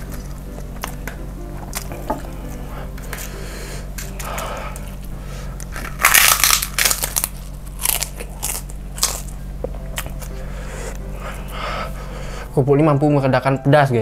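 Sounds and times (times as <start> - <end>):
cracker crunching: 0.0 - 10.4.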